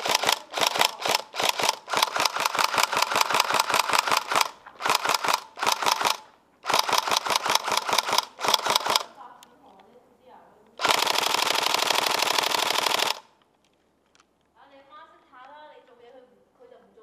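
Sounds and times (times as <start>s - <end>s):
airsoft gun firing full auto: 0.0s - 9.2s, 10.8s - 13.4s.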